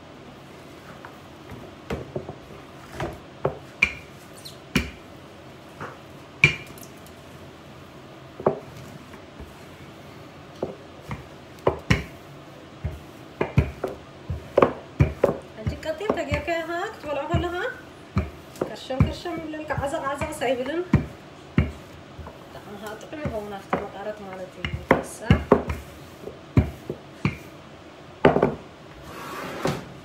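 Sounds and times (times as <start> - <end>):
rolling pin knocking on countertop: 4.7 - 5.0, 10.6 - 12.2, 12.8 - 27.5, 28.2 - 28.7.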